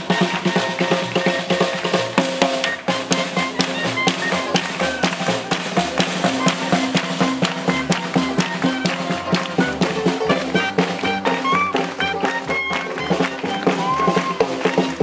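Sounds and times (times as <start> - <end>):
drum struck with sticks: 0.0 - 15.0
swing band playing: 0.0 - 15.0.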